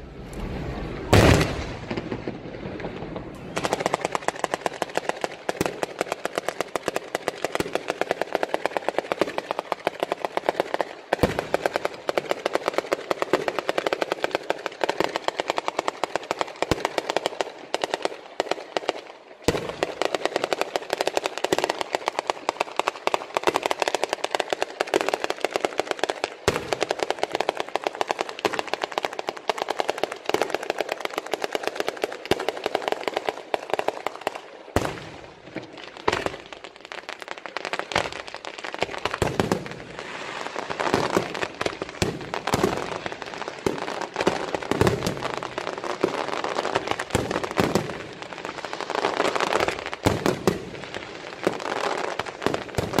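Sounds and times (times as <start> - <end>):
firecrackers crackling: 0.0 - 53.0
loud single firework bangs: 1.0 - 6.0.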